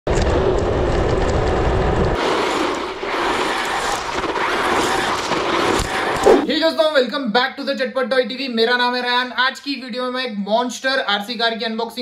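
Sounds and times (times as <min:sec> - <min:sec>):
heavy rumble: 0:00.1 - 0:06.5
rc truck driving over gravel: 0:00.1 - 0:06.5.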